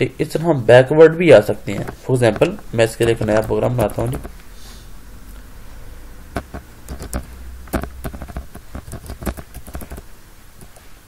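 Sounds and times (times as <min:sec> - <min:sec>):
keyboard typing: 0:01.6 - 0:04.4, 0:06.3 - 0:10.8.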